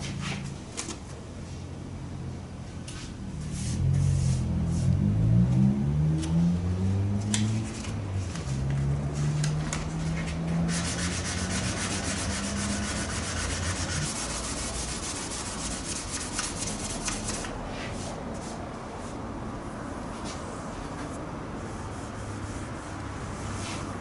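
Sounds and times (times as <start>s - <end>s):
sandpaper rubbing: 10.0s - 18.6s.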